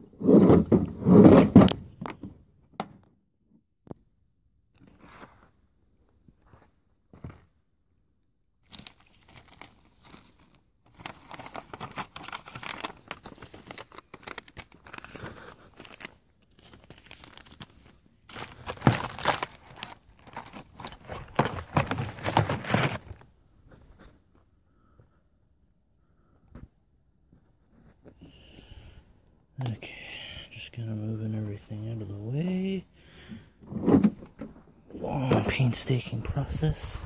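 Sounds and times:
crinkling and rustling: 8.6 - 24.5, 27.3 - 28.3, 33.6 - 37.0.

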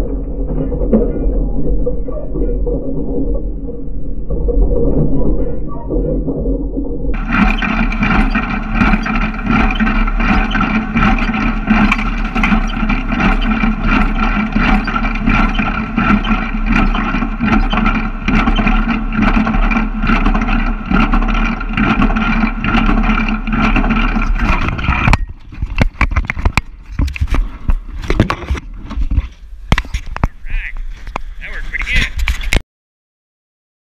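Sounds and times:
scattered knocks and bumps: 4.2 - 31.3
hay baler clattering: 7.2 - 32.6.

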